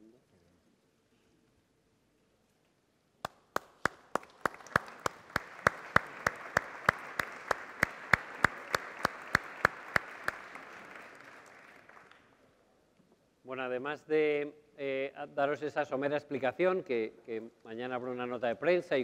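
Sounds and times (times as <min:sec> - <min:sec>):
sharp evenly spaced claps: 0:03.2 - 0:12.3
audience applauding: 0:03.2 - 0:12.4.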